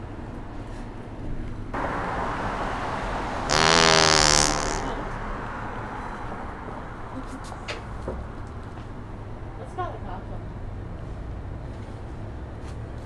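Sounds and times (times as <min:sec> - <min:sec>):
passing traffic rush: 0:00.0 - 0:13.0
buzzy fart noise: 0:03.5 - 0:05.0.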